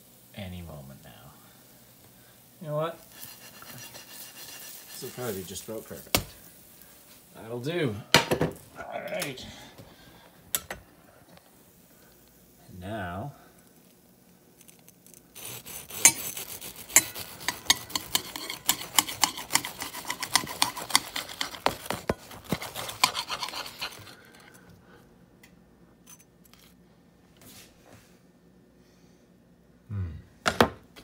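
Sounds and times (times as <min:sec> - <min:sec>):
serrated knife sawing through toast: 0:03.1 - 0:06.0, 0:14.6 - 0:24.5.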